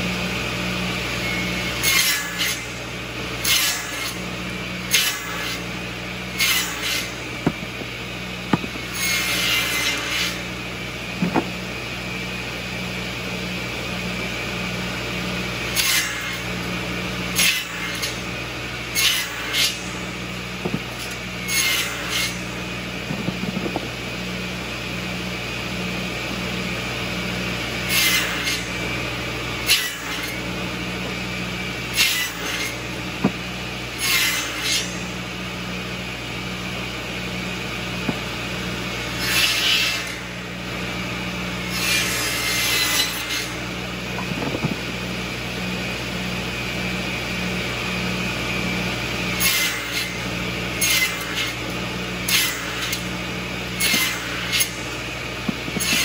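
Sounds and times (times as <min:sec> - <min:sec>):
circular saw cutting wood: 0:00.0 - 0:56.0
tractor engine running: 0:11.0 - 0:11.8, 0:22.6 - 0:24.4, 0:44.0 - 0:45.3.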